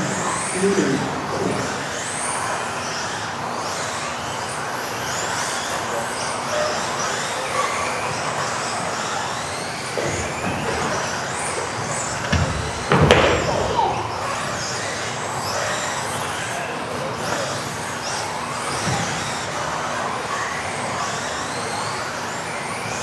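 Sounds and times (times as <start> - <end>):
electric motors whining: 0.0 - 23.0.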